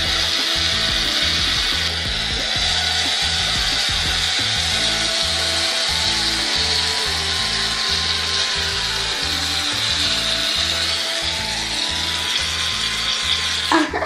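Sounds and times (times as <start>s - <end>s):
aerosol can hissing: 0.0s - 14.0s
background music with beat: 0.0s - 14.0s.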